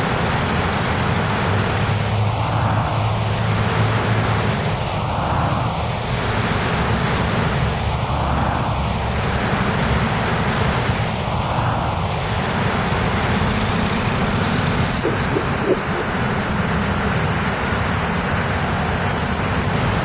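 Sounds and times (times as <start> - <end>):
bus diesel engine: 0.0 - 20.0
traffic: 0.0 - 20.0
tyres hissing on wet road: 0.0 - 20.0.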